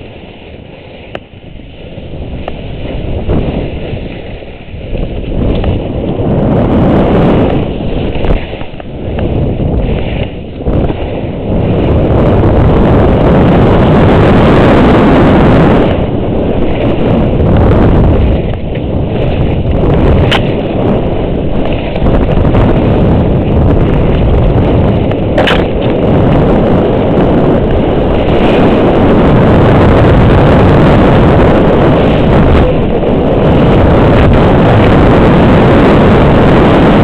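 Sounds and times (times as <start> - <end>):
rush of snow under skis: 0.0 - 37.0
wind buffeting microphone: 0.0 - 37.0
sharp click: 25.4 - 25.9.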